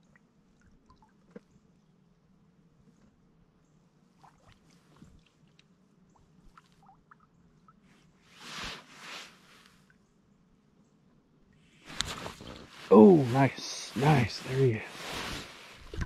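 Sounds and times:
water lapping and trickling: 0.0 - 2.6, 4.0 - 10.0
small ticks: 4.4 - 5.8
soft rushing water swells: 12.7 - 16.0.

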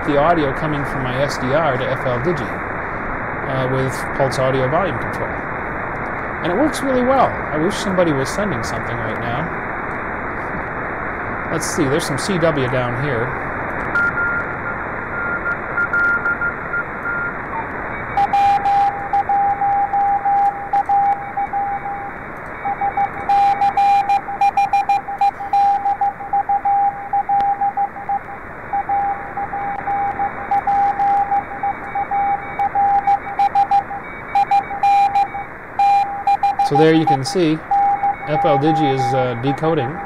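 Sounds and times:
radio band noise hiss: 0.0 - 40.0
morse code tones: 13.9 - 40.0.

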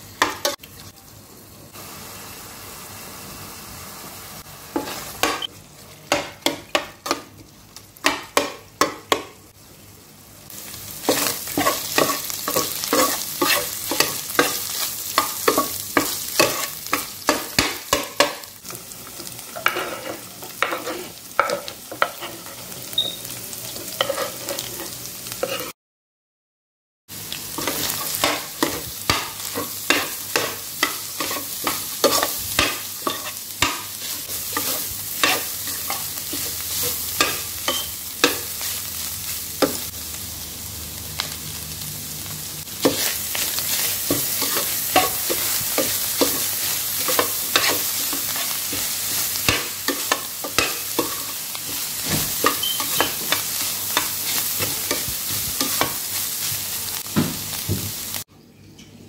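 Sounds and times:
filling sizzling in a pan: 0.0 - 25.8, 27.1 - 58.3
spatula scraping and knocking pan: 11.0 - 18.4, 19.2 - 22.6, 27.6 - 38.5, 42.8 - 56.1.

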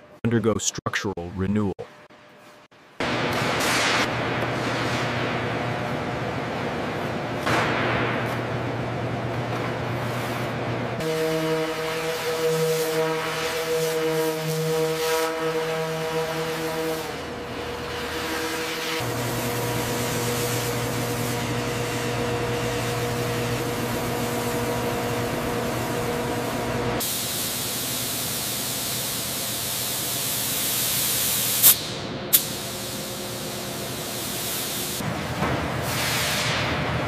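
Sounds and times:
steady machine hum: 1.8 - 37.0
hissing spray: 18.0 - 35.0.

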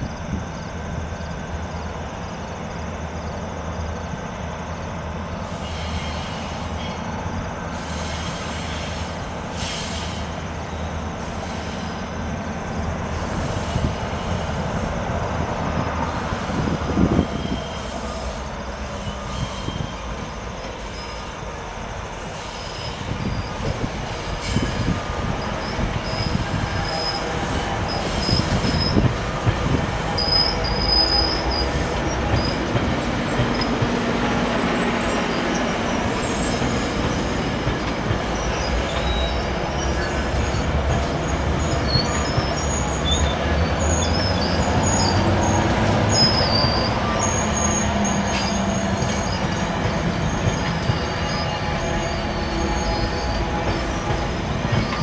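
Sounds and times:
train wheels rumbling on rails: 0.0 - 55.0
high metallic squeals: 19.0 - 21.4, 38.4 - 55.0.

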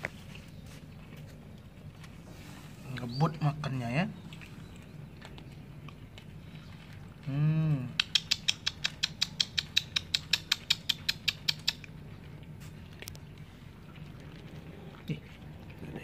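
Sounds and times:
cats crunching dry kibble: 0.0 - 3.0, 4.2 - 7.3.

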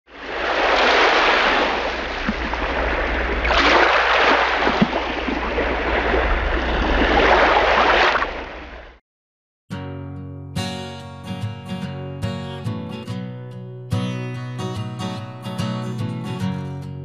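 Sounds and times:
sea waves washing in: 0.1 - 9.0.

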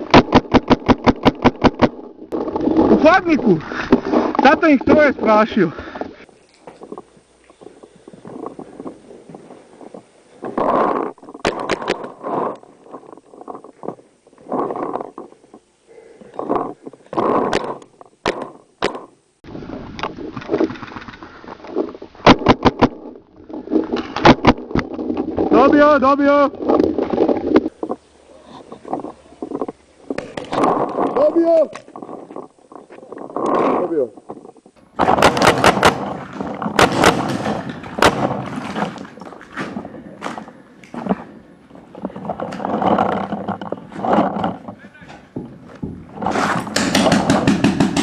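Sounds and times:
rustling and movement: 0.0 - 48.0
paintball marker shots: 35.0 - 38.7, 46.2 - 48.0.

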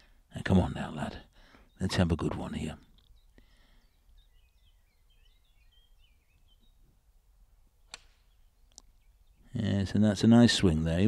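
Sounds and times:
faint birdsong: 0.0 - 11.0.

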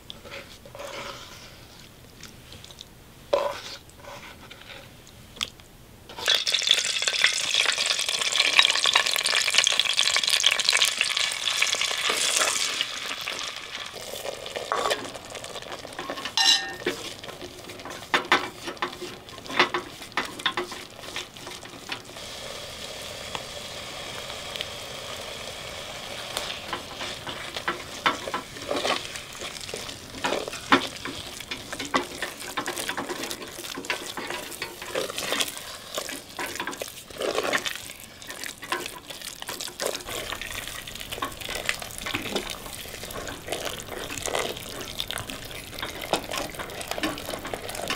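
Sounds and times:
wooden spoon scraping pot: 0.0 - 1.9, 3.3 - 5.0, 11.5 - 22.2, 26.4 - 47.9
food sizzling in a pot: 6.1 - 47.9.

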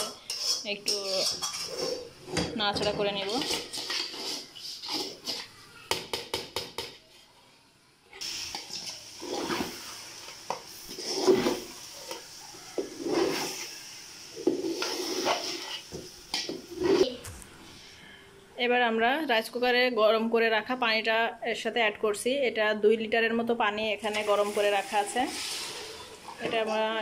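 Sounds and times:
rice sizzling in oil: 0.0 - 2.2, 3.2 - 5.6, 8.2 - 17.1, 24.1 - 27.0
spatula scraping pot: 0.0 - 5.6, 8.5 - 13.8, 14.4 - 17.2, 24.1 - 27.0.

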